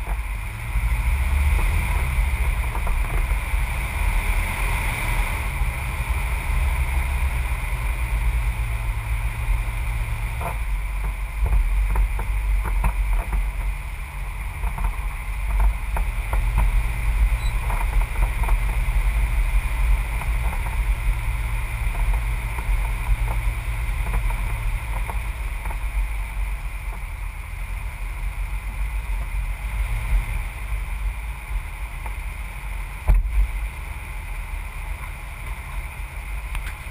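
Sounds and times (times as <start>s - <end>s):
tyres crackling on gravel: 0.0s - 27.3s
wind noise: 0.0s - 27.4s
muffled vehicle rumble: 0.0s - 36.9s.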